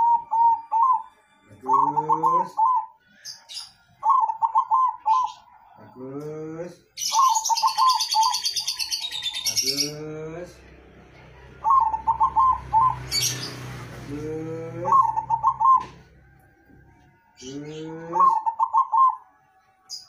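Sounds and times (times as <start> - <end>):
dove cooing: 0.0 - 3.0, 4.0 - 5.8, 7.1 - 10.0, 11.6 - 16.2, 17.4 - 19.2.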